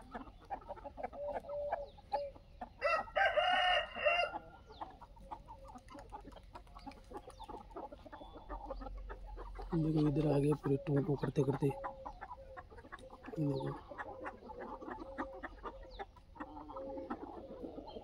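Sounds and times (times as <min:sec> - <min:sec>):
chickens clucking and chirping: 0:00.0 - 0:18.0
rooster crowing: 0:02.8 - 0:04.5.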